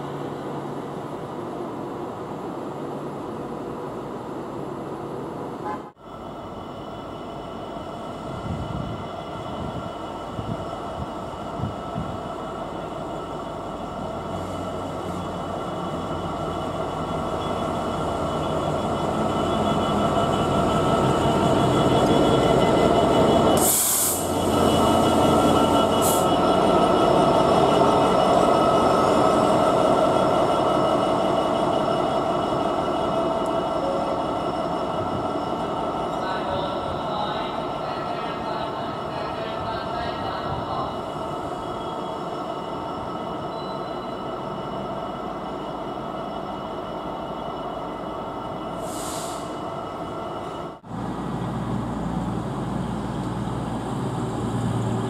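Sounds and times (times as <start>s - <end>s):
diesel locomotive passing: 0.0s - 55.0s
short hiss: 23.6s - 24.3s, 48.8s - 49.6s.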